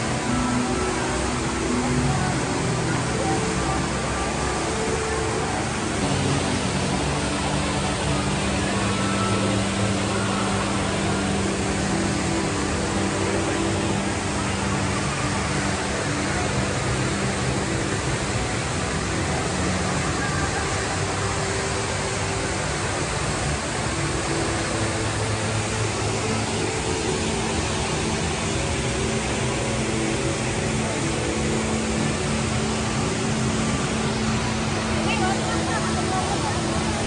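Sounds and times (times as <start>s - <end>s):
faint music: 0.0s - 37.0s
indoor waterfall rushing: 0.0s - 37.0s.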